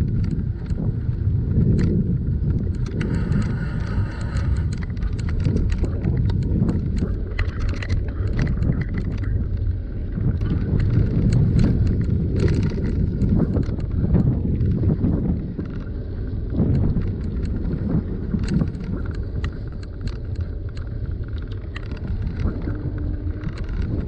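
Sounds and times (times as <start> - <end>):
bicycle clicks and rattles: 0.0 - 24.0
wind buffeting microphone: 0.0 - 24.0.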